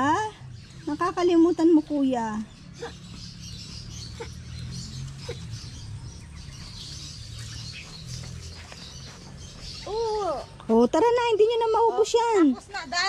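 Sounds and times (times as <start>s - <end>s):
faint bird chirps: 0.0s - 10.8s.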